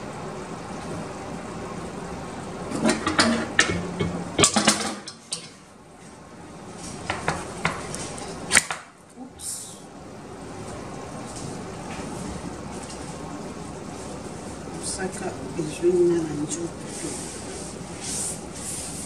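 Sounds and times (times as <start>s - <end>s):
metal utensils and cans clinking: 2.7s - 5.6s.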